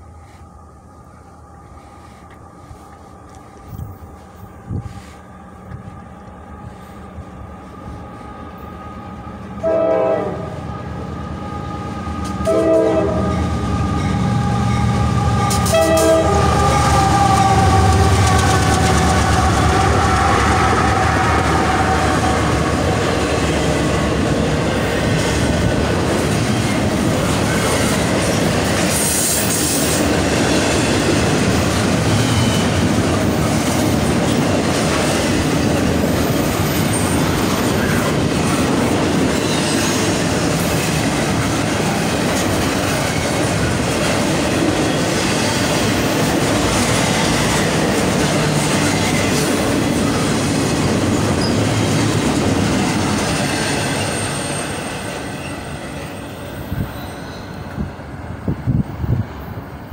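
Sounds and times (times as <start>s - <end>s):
diesel locomotives passing: 0.0s - 59.9s
train wheels rumbling on rail: 0.0s - 59.9s
train horn blasts: 8.6s - 22.5s.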